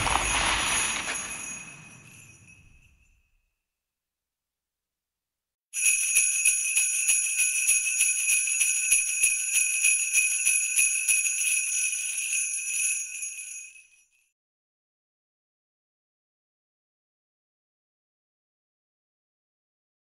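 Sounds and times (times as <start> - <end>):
sleigh bells jingling: 0.0 - 3.3, 5.8 - 14.2.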